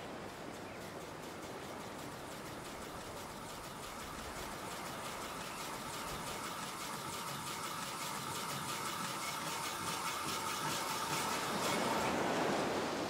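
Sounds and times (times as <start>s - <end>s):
sea surf breaking on shore: 7.6s - 13.0s.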